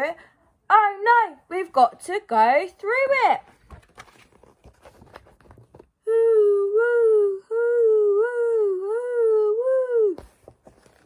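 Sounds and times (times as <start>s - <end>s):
book page turning: 3.5s - 5.9s, 10.2s - 11.0s
woman imitating howling wind: 6.1s - 10.2s.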